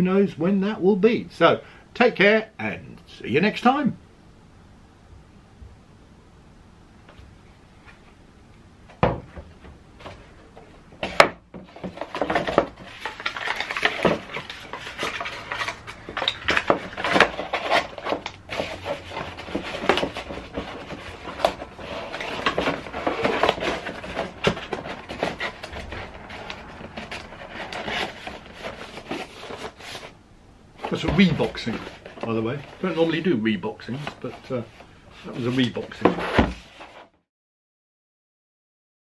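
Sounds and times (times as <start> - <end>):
knocks on a bench: 9.0 - 9.5
cardboard rustling and scraping: 9.0 - 30.2, 30.8 - 37.2.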